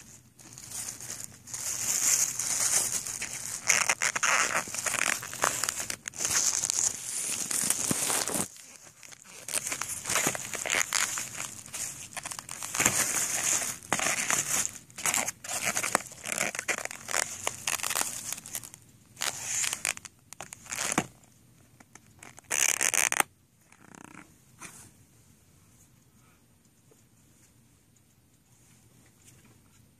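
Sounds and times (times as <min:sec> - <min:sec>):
plastic bag crinkling: 0:00.0 - 0:21.1.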